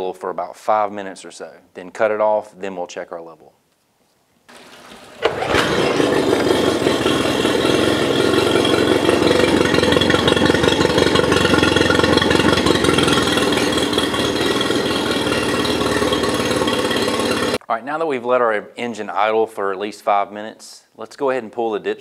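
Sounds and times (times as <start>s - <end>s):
water splashing: 4.5s - 7.6s
outboard engine idling: 4.6s - 17.6s.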